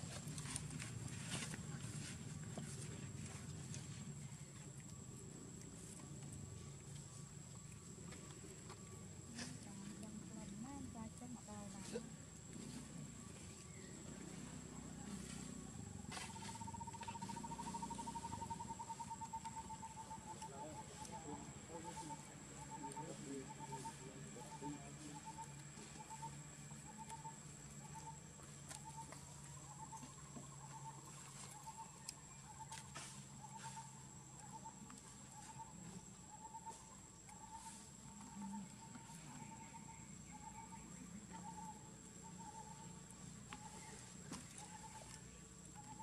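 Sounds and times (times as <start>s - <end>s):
low outdoor rumble: 0.0s - 46.0s
insect trilling: 9.2s - 46.0s.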